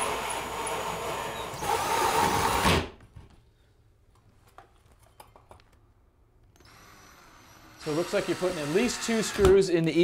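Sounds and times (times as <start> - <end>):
cordless drill cutting drywall: 0.0 - 2.9, 6.6 - 9.7.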